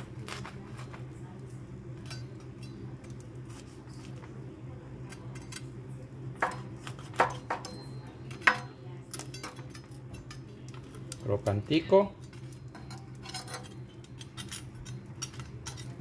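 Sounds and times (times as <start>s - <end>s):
knife cracking crispy skin: 0.0s - 1.1s
low steady hum: 0.0s - 16.0s.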